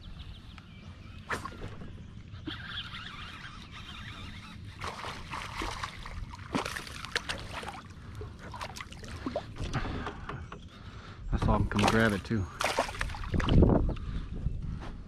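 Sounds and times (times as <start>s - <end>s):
water sloshing: 4.1s - 10.0s, 11.6s - 13.7s
fish splashing in water: 4.8s - 9.4s, 11.8s - 13.6s.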